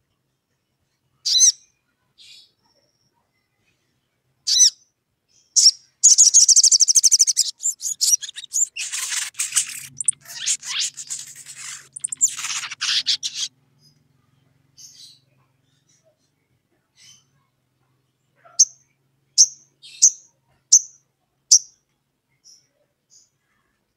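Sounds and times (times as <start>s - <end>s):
sunbird chirping and trilling: 1.2s - 3.1s, 4.5s - 4.8s, 5.4s - 14.0s
faint low hum: 6.1s - 23.9s.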